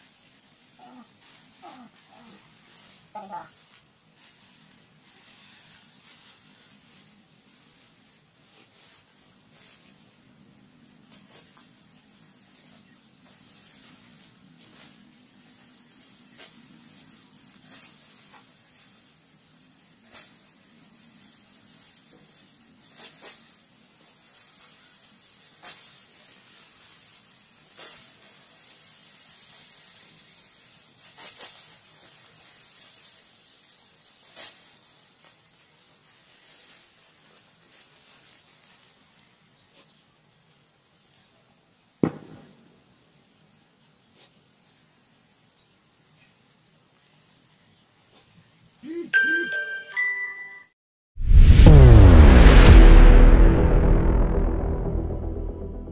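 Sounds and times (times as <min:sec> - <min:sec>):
straw rustling: 0:00.0 - 0:40.0
sickle cutting rice stalks: 0:00.0 - 0:41.3, 0:43.9 - 0:49.1
sharp thump: 0:42.0 - 0:42.6, 0:51.2 - 0:55.9.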